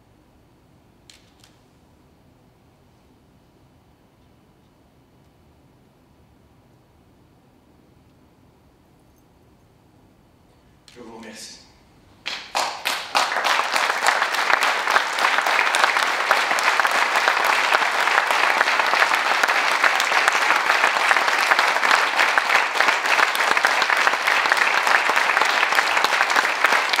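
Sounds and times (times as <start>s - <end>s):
crowd applauding: 12.2s - 27.0s.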